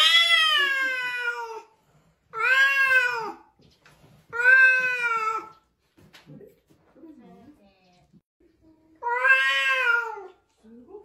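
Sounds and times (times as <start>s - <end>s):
cat yowling: 2.4s - 3.4s, 9.0s - 10.3s.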